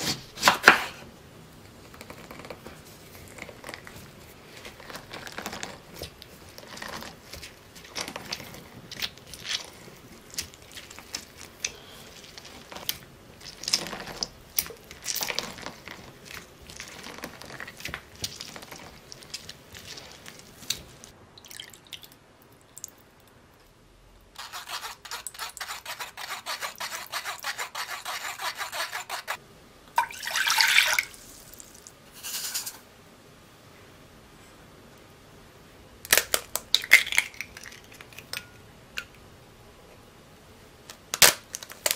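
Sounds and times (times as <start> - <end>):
wet squishing of lemon on juicer: 3.2 - 23.3
juice dripping: 7.7 - 23.7.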